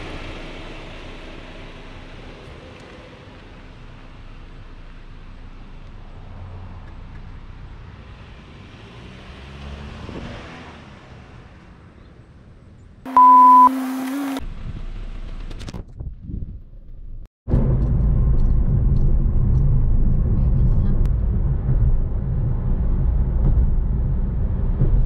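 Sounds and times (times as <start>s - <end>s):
car road and engine noise: 0.0s - 25.0s
loud distorted electronic beep: 13.1s - 14.0s.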